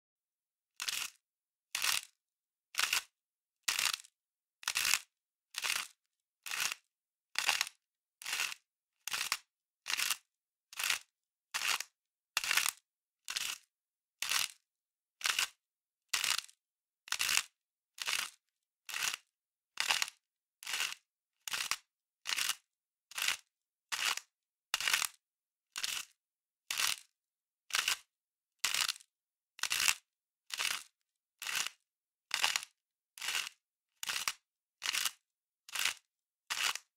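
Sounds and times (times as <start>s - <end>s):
salt grinder crunching: 0.8s - 2.2s, 2.8s - 3.1s, 3.7s - 4.0s, 7.4s - 10.2s, 13.3s - 13.6s, 19.8s - 24.2s, 25.8s - 26.1s, 28.6s - 29.0s, 29.6s - 36.9s.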